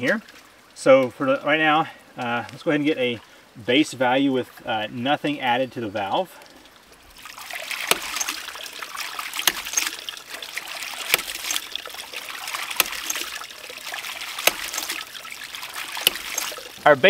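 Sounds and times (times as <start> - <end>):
water gushing and splashing: 6.0 - 17.0.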